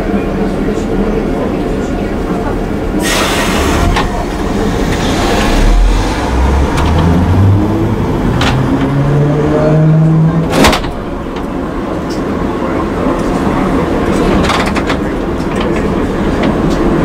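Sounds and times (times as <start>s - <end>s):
tram motors whining: 0.0s - 17.0s
sharp clunk: 10.5s - 11.4s.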